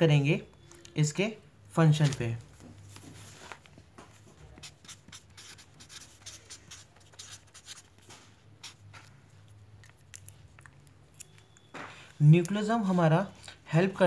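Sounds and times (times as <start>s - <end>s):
marker writing on paper: 4.1s - 9.2s.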